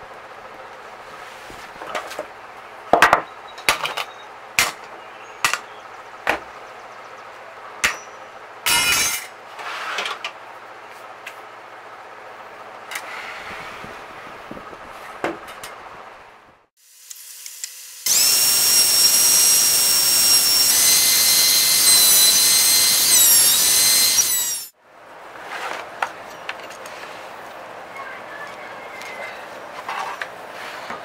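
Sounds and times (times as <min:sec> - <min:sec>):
scraping rustle: 0:00.8 - 0:02.3, 0:09.5 - 0:10.2, 0:12.9 - 0:16.3, 0:25.3 - 0:27.6, 0:28.5 - 0:31.0
tools knocking on wooden workbench: 0:02.9 - 0:03.3, 0:14.5 - 0:15.6.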